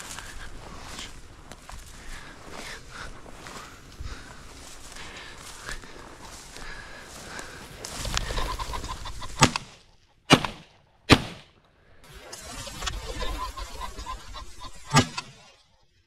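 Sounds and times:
pheasant cackling: 0.0 - 10.0, 12.2 - 15.6
rustling through dry grass: 0.0 - 10.7, 12.1 - 15.7
shotgun shots: 10.3 - 11.6.

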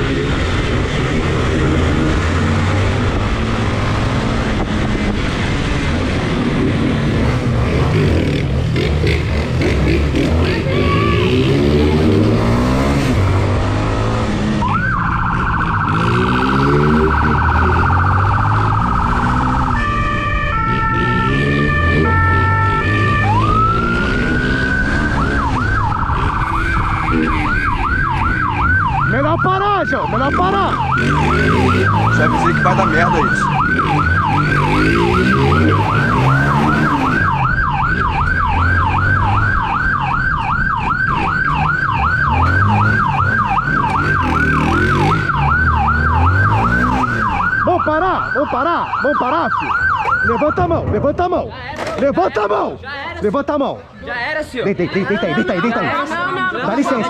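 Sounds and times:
motorcycle engine revving: 0.0 - 51.0
electronic siren: 10.9 - 50.7.

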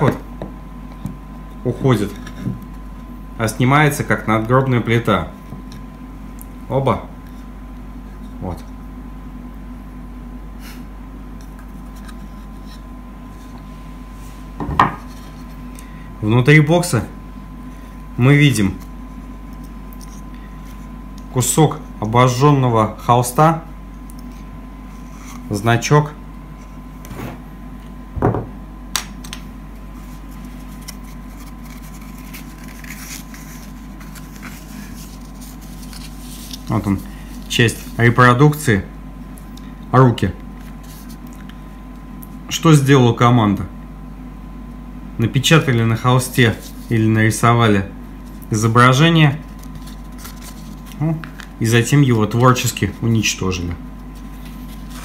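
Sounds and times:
steady low hum: 0.0 - 55.0
packaging rustling: 30.0 - 38.0, 49.4 - 51.6.

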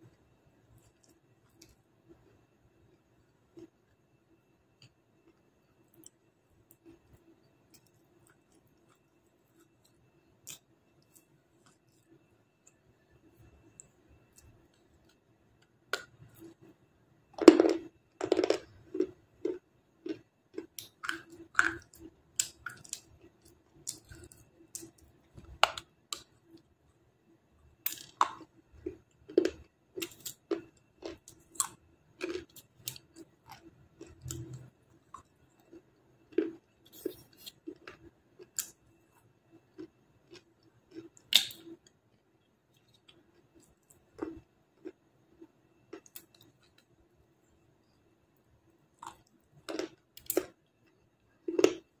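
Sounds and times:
crunchy biting and chewing: 27.9 - 38.8.

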